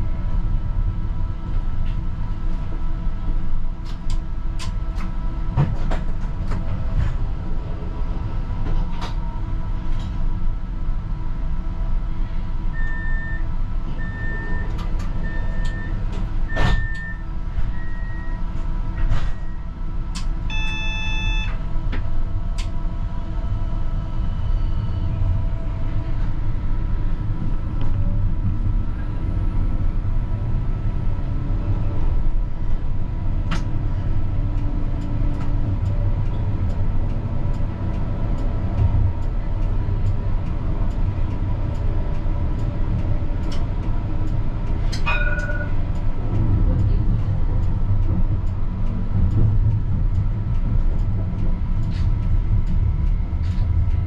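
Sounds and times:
tram wheels and motors rumbling: 0.0 - 54.0
door-warning beeps: 12.8 - 18.4, 20.5 - 21.6.

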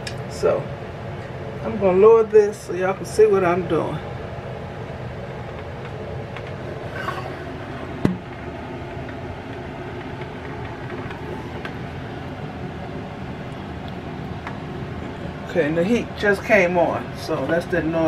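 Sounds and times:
heating running noise: 0.0 - 18.0
single knock: 8.0 - 8.2.

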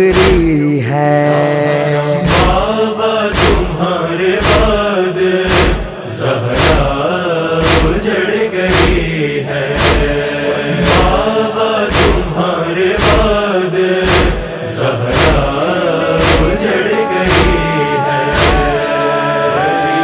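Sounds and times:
heavy thumping beat: 0.0 - 0.6, 2.2 - 2.7, 3.4 - 3.8, 4.4 - 4.9, 5.5 - 6.0, 6.6 - 7.0, 7.6 - 8.0, 8.7 - 9.2, 9.8 - 10.2, 10.8 - 11.2, 11.9 - 12.4, 13.0 - 14.5, 15.1 - 19.0
men chanting a mournful melody: 0.0 - 20.0.

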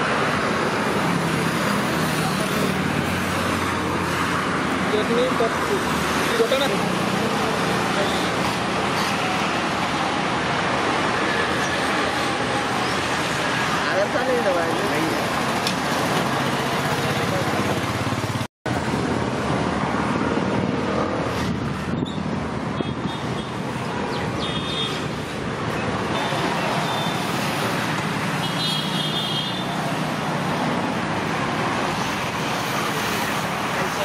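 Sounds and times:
road traffic: 0.0 - 34.0
vehicle horn toots: 28.4 - 29.6.

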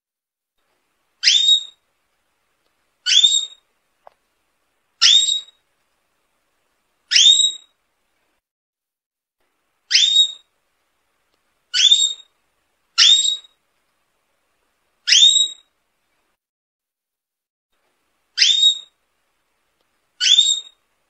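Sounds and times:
canary upward-sliding whistle calls: 1.2 - 1.8, 3.1 - 3.6, 5.0 - 5.6, 7.1 - 7.7, 9.9 - 10.5, 11.8 - 12.3, 13.0 - 13.6, 15.1 - 15.7, 18.4 - 18.9, 20.2 - 20.8.

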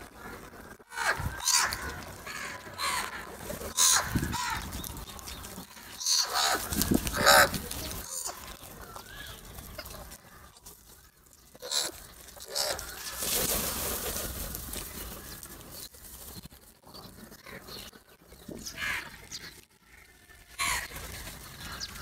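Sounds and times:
crows cawing: 0.0 - 4.8, 5.9 - 9.4, 11.6 - 13.3, 18.8 - 19.2, 19.9 - 21.0.

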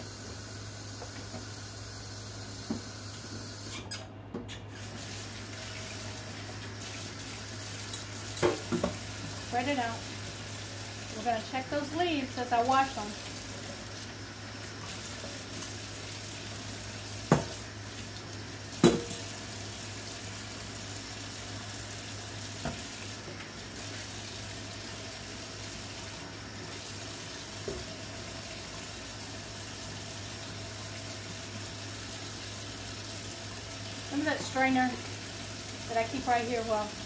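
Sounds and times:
tap running into steel sink: 17.3 - 17.6, 18.8 - 19.2.

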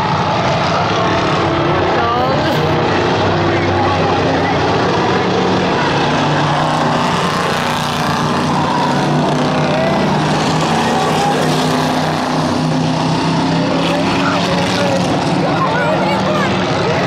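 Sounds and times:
stock car engines racing: 0.0 - 17.0.

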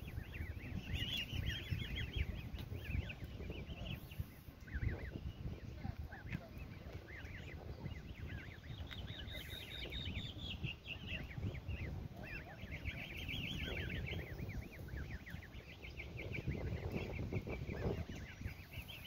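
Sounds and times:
goslings peeping: 0.0 - 19.0.

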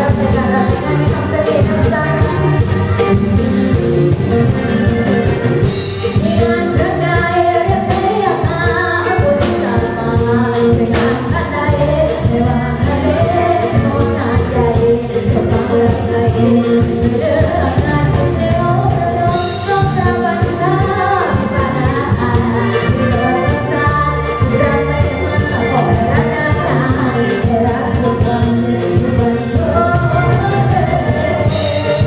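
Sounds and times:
drum kit beat: 0.0 - 32.0
woman singing into a microphone: 0.0 - 32.0.

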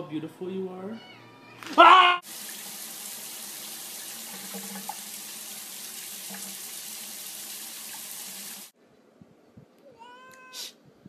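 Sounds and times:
tap water running into bathtub: 2.2 - 8.7.

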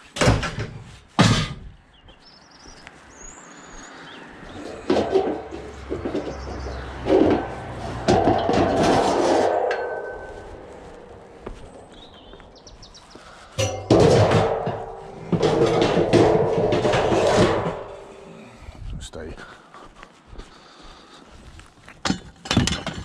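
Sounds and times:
bird chirping: 1.8 - 4.9, 5.5 - 7.2, 11.6 - 13.6
scrap metal clanking: 4.5 - 12.4, 13.1 - 18.6
knocks: 4.6 - 10.5, 13.6 - 18.2
noisy rumble: 4.6 - 19.1.

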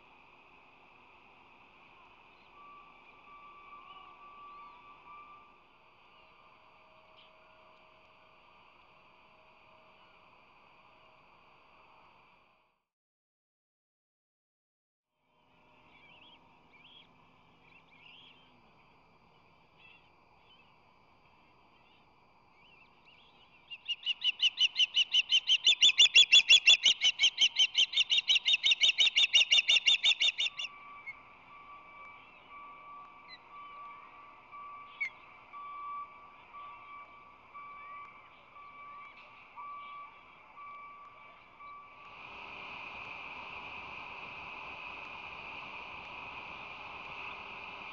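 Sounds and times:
bird calling in high chirps: 23.2 - 31.2.

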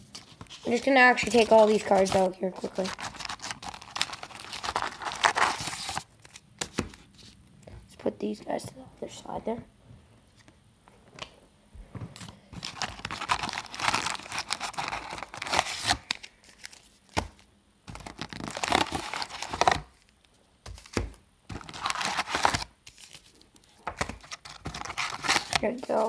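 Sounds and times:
foil packs crinkling: 0.0 - 6.8, 12.6 - 26.0.

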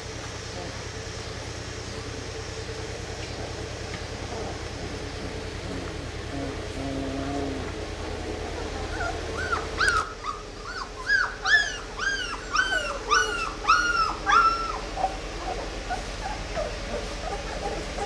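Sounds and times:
puppies whimpering: 4.2 - 18.0.

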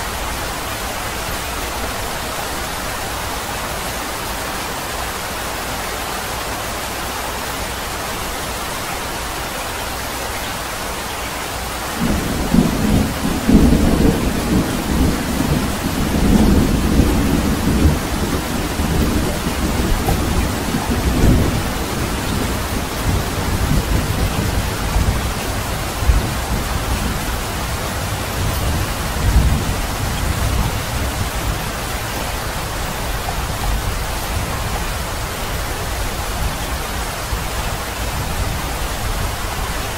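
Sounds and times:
steady rain hiss: 0.0 - 39.9
thunder rumbling: 12.0 - 34.8.

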